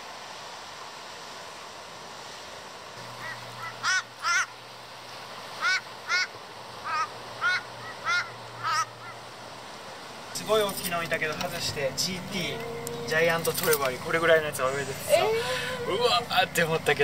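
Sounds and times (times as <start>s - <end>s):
sea waves washing: 0.0s - 17.0s
crow cawing: 3.2s - 4.6s, 5.6s - 9.2s.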